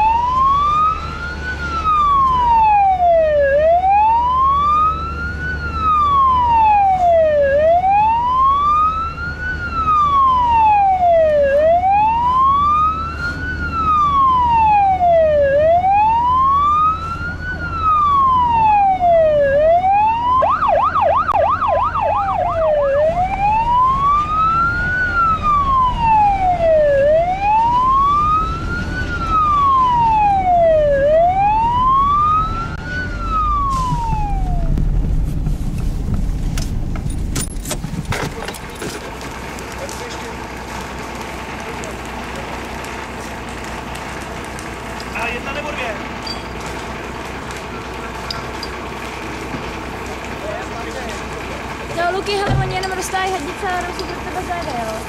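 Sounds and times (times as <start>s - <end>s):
siren wailing and yelping: 0.0s - 34.8s
car engine and road rumble: 0.0s - 55.0s.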